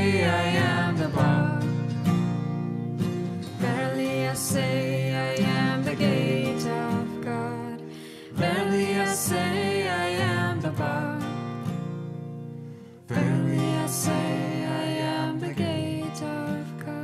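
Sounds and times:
person singing melody: 0.0s - 2.0s, 3.5s - 11.4s, 13.1s - 17.0s
acoustic guitars strumming: 0.0s - 17.0s.

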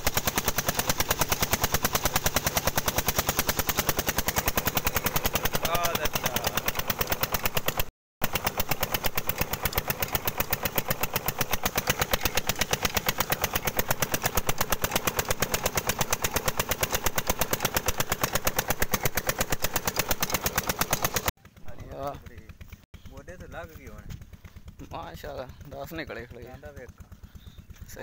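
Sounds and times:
diesel engine chugging: 0.0s - 28.0s.

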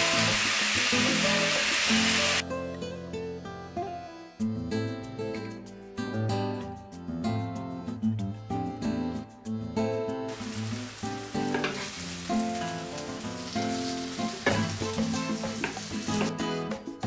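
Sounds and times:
meat sizzling in oil: 0.0s - 2.4s, 10.3s - 16.3s
background music: 0.0s - 17.0s.

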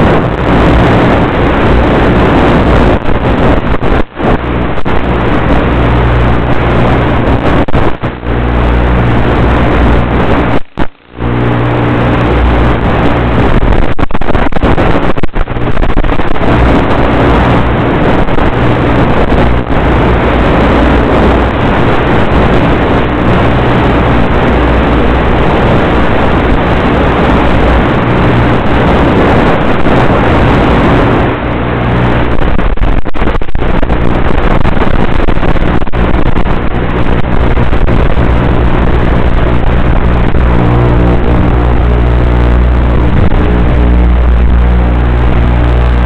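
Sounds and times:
airflow rushing over microphone: 0.0s - 46.0s.

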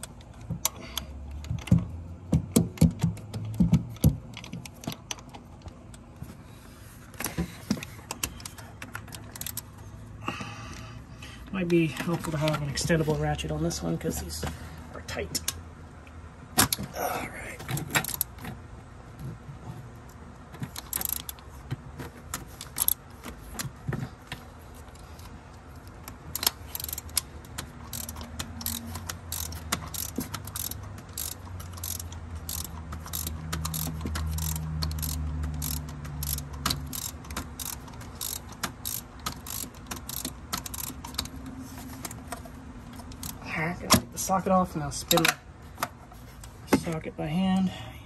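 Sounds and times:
ratchet wrench clicking: 8.3s - 9.7s, 17.8s - 18.3s, 20.7s - 21.4s, 22.6s - 23.0s, 25.2s - 42.2s, 43.0s - 43.4s.

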